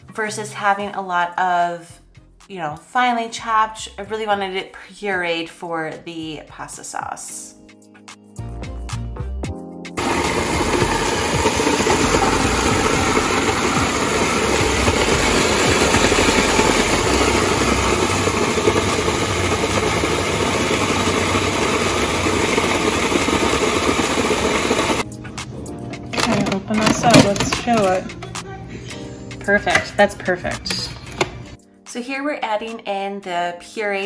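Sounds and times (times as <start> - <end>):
food processor motor running: 10.0 - 25.0.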